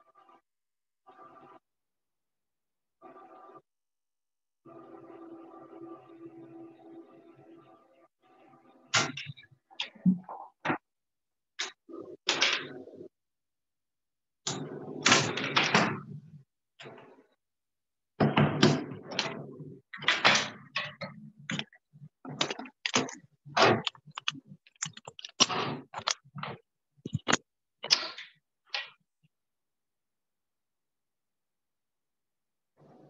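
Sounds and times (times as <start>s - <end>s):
knocks clicks and rustles: 20.0s - 29.0s.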